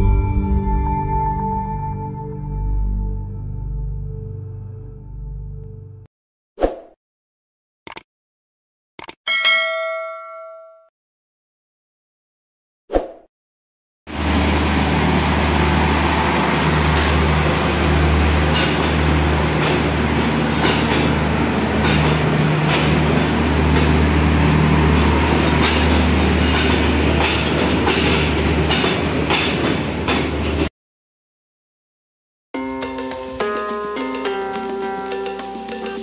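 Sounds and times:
train engine drone: 14.1s - 30.7s
train wheels clacking: 16.8s - 30.7s.

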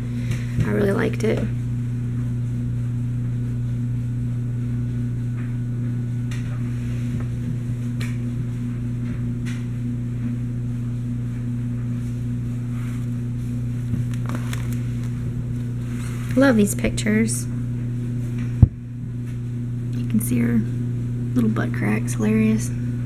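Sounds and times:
steady low hum: 0.0s - 23.0s
plastic page protectors rustling: 13.9s - 15.2s.

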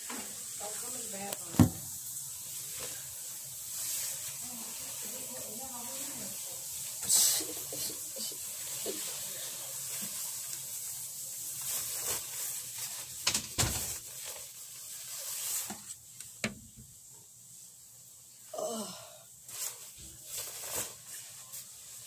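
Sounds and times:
steady hiss: 0.0s - 22.0s
cloth rustling: 19.5s - 22.0s.

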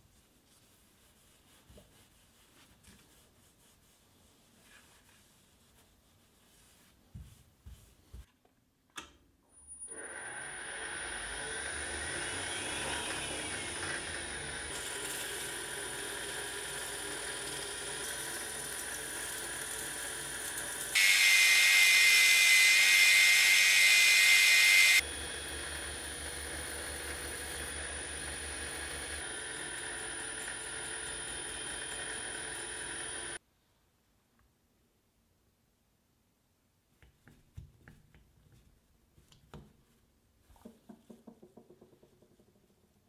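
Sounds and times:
machine spindle humming: 21.0s - 33.4s.

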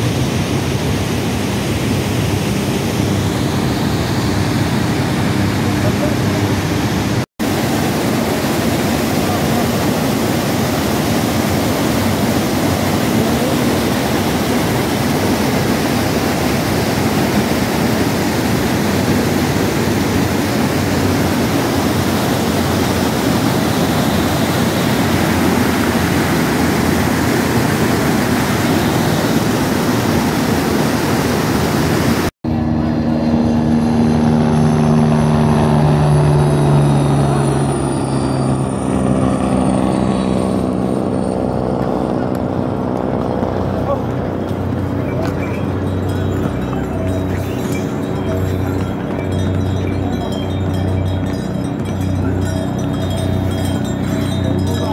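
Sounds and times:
river rushing over rapids: 0.0s - 32.3s
helicopter flying past: 0.0s - 54.9s.

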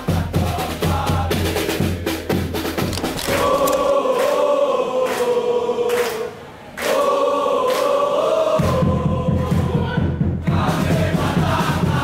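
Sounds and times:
crowd chanting: 0.0s - 2.0s, 3.1s - 12.0s
drums beating: 0.0s - 4.5s, 8.5s - 12.0s.

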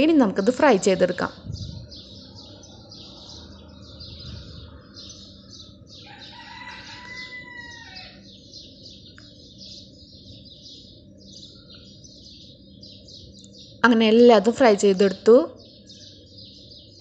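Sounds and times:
high-pitched chirping: 0.0s - 17.0s
rooster crowing: 5.8s - 8.4s.

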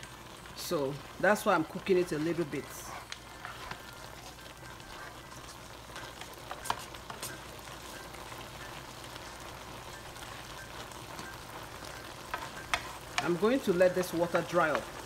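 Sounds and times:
meat sizzling in a frying pan: 0.0s - 15.0s
spatula clicking against pan: 12.3s - 13.4s.

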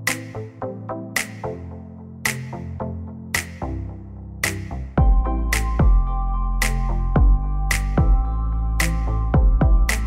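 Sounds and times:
background music with steady beat: 0.0s - 10.0s
deep bass: 3.6s - 10.0s.

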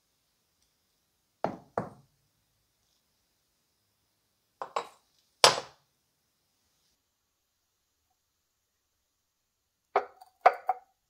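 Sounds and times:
steel parts knocking on wooden table: 4.6s - 5.7s.

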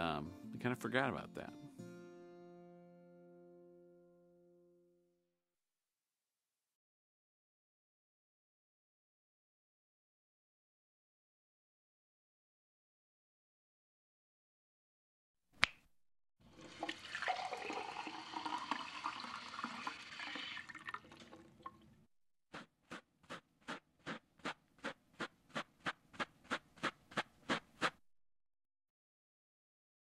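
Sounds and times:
toilet flushing: 16.4s - 21.9s
quick footsteps: 22.5s - 28.0s.

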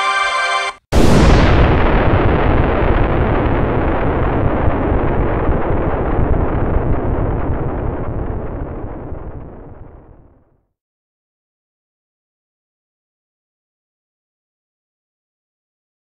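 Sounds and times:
deep boom rumble: 0.9s - 10.4s.

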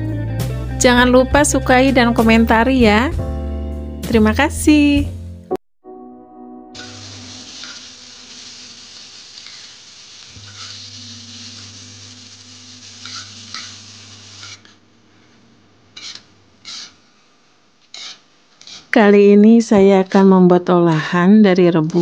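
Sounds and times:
food sizzling in a frying pan: 6.8s - 14.8s, 16.0s - 17.0s, 17.9s - 19.0s
spatula scraping a pan: 9.4s - 11.9s, 12.8s - 14.8s, 16.0s - 17.0s, 17.9s - 19.0s.

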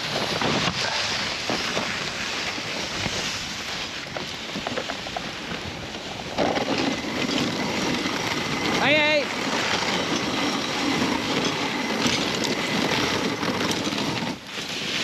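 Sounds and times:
sled runners scraping over snow: 0.0s - 15.0s
wind on microphone: 0.0s - 15.0s.

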